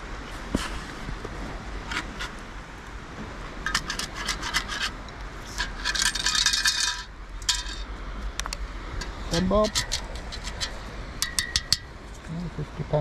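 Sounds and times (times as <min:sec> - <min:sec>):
sand rattling through metal scoop: 0:03.7 - 0:07.9.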